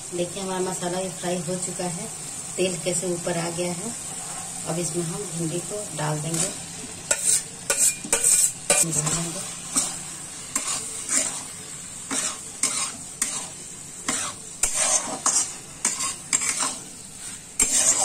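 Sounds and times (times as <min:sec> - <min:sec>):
vegetables sizzling in hot oil: 0:00.0 - 0:18.0
metal spatula scraping a pan: 0:06.2 - 0:18.0.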